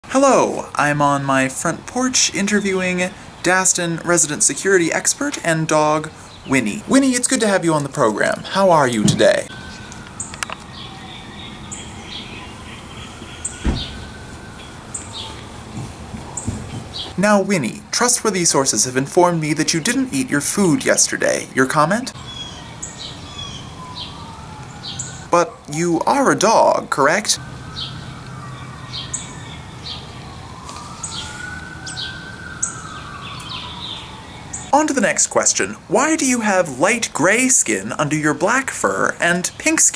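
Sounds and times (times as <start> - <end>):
bird calling: 2.3 - 17.2, 20.8 - 37.8
siren wailing: 6.1 - 17.2, 19.1 - 38.8
dull thump: 9.0 - 9.4, 13.6 - 14.1.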